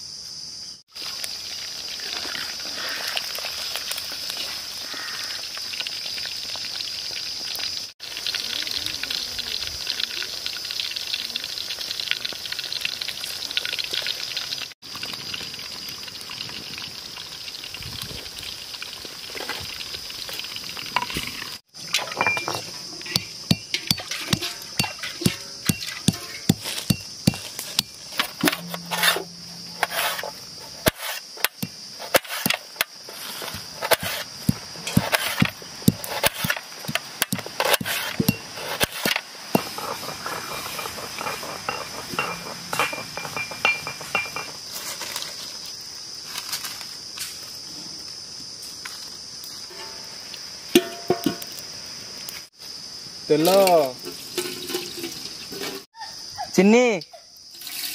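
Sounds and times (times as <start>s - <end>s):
high insect drone: 0.0s - 12.4s, 19.4s - 57.9s
knife slicing onion on steel plate: 23.1s - 32.6s.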